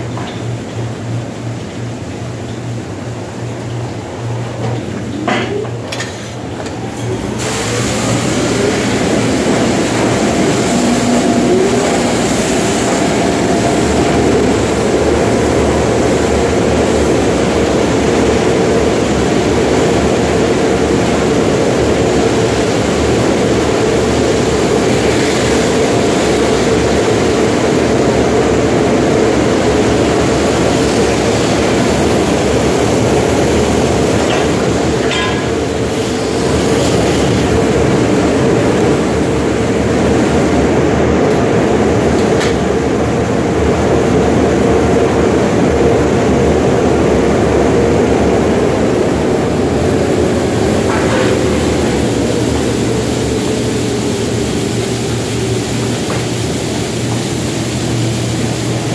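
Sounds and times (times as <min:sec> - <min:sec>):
constant hum: 0:00.0 - 0:58.9
pressure washer spraying water: 0:07.2 - 0:42.9, 0:48.1 - 0:58.9.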